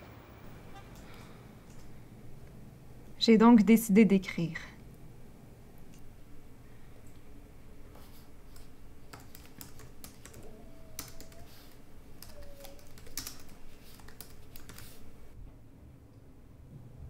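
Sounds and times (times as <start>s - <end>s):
typing on a laptop keyboard: 8.5s - 15.0s.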